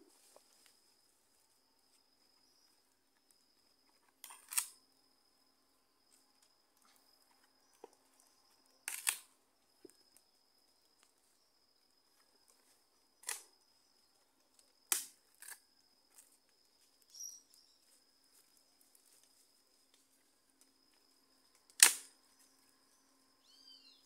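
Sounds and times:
faint high whine: 0.0s - 24.0s.

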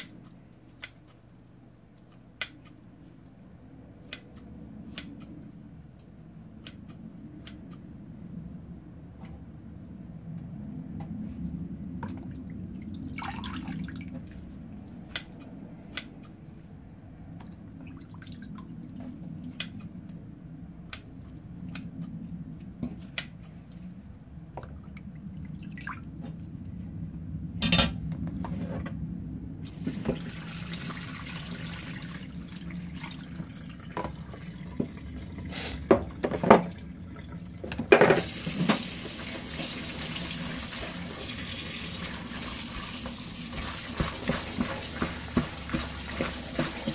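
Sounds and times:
tap water running: 12.0s - 14.5s, 29.6s - 46.9s.

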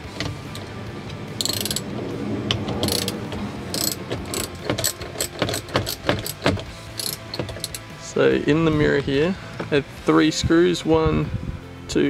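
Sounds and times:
ratchet wrench clicking: 1.4s - 1.9s, 2.8s - 7.9s.

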